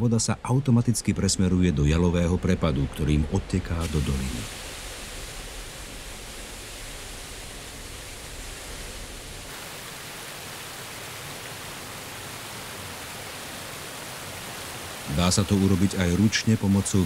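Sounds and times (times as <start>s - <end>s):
water rushing down spillway: 2.8s - 17.0s.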